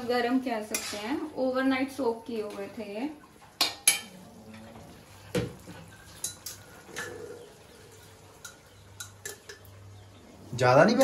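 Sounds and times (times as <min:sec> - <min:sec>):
steel cookware clinking: 0:00.7 - 0:01.2, 0:03.6 - 0:04.6, 0:05.8 - 0:07.2, 0:08.4 - 0:09.7.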